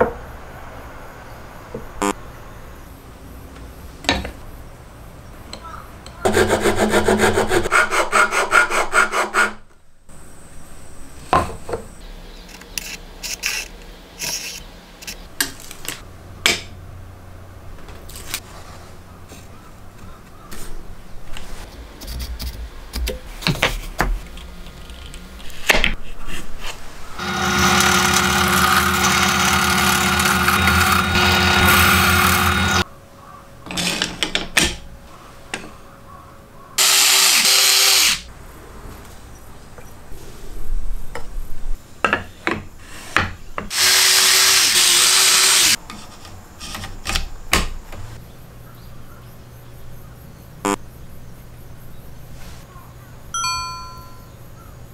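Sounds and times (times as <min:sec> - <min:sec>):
power tool running: 0:27.2 - 0:32.8, 0:36.8 - 0:38.2, 0:43.7 - 0:45.8.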